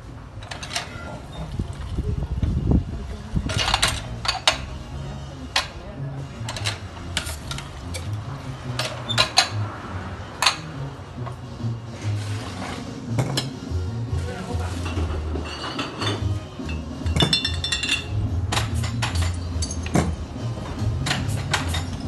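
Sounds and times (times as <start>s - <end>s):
dishes and utensils clinking: 0.4s - 1.5s, 6.4s - 9.6s, 10.4s - 10.8s, 14.6s - 20.2s, 21.0s - 22.0s
background music with bass: 1.2s - 22.0s.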